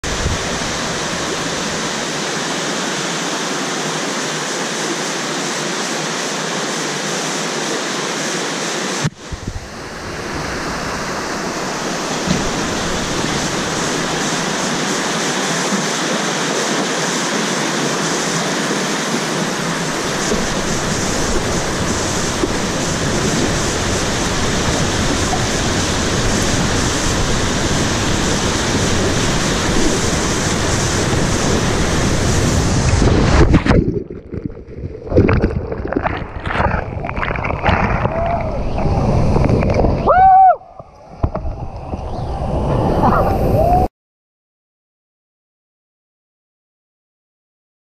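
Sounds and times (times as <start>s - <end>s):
whitewater rapids rushing: 0.0s - 34.0s.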